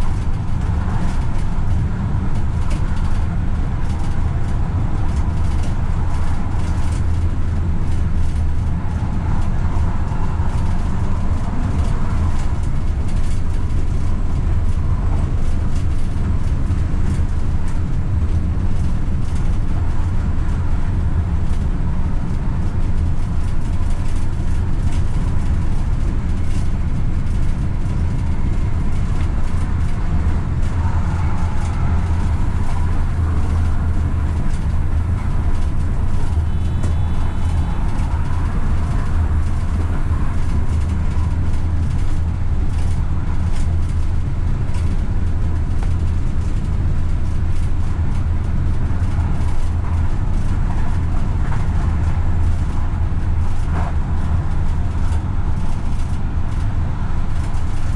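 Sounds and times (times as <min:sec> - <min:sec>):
train wheels rumbling on rail: 0:00.0 - 0:57.9
faint whine: 0:27.3 - 0:42.0.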